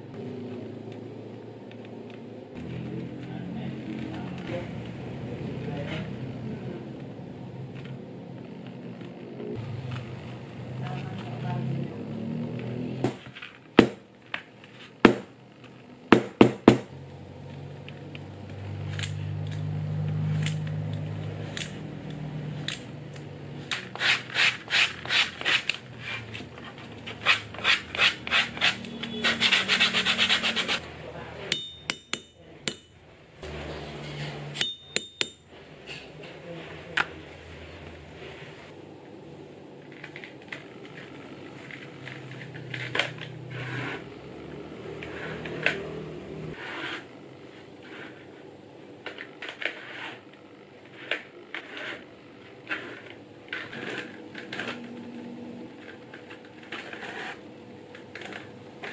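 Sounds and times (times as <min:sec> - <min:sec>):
cloth rubbing leather edges: 0:23.8 - 0:30.8.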